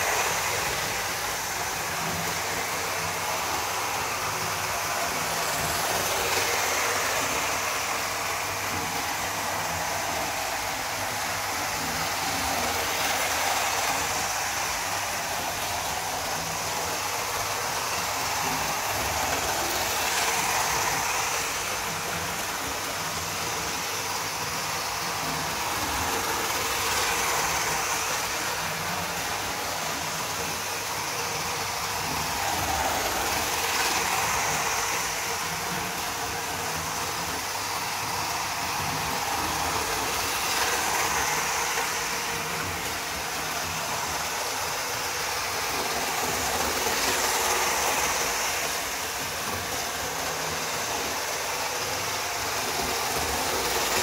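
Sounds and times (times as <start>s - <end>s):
model train motor whirring: 0.0s - 54.0s.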